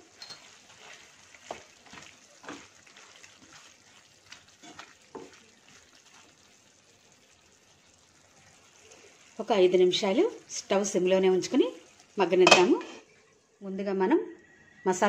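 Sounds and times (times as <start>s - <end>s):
faint sizzle of simmering sauce: 0.0s - 15.0s
wooden spatula scraping pan: 0.2s - 3.8s.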